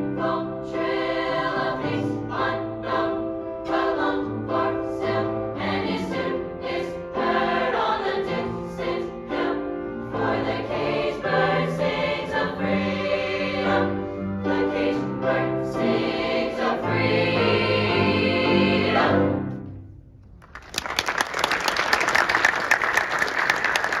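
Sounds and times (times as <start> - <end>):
choir singing: 0.0 - 19.6
audience applause: 20.4 - 24.0.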